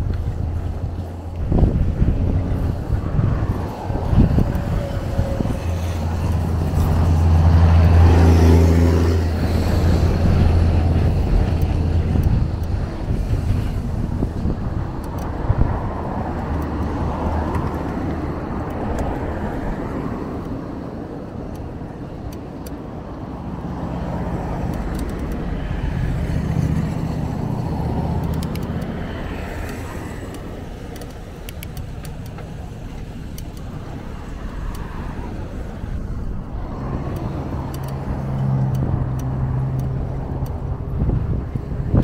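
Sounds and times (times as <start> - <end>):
car passing: 0.0 - 22.2, 22.9 - 42.0
road noise: 0.0 - 42.0.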